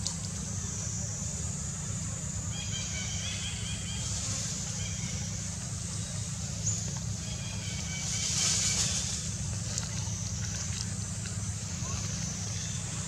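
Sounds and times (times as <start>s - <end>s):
steady high hiss: 0.0s - 13.0s.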